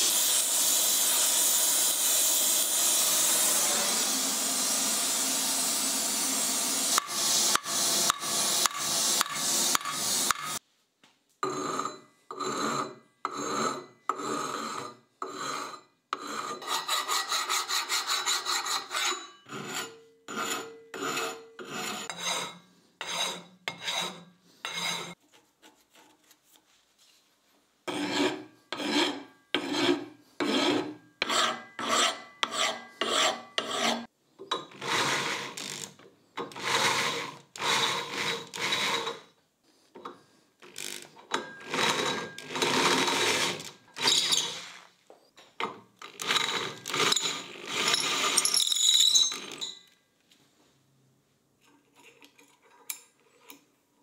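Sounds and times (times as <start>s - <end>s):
hand file rasping on steel: 11.5s - 26.1s, 27.9s - 34.1s, 36.4s - 39.3s.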